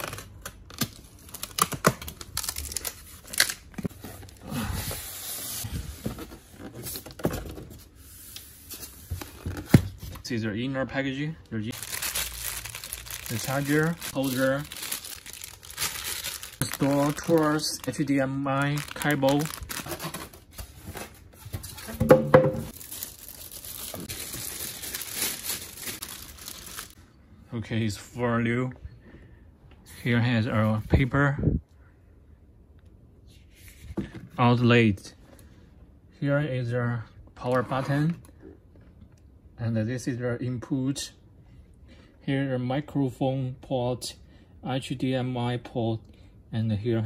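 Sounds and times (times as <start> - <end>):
packing tape tearing: 0.0 - 3.8
plastic bag crinkling: 11.6 - 20.1, 22.7 - 27.0.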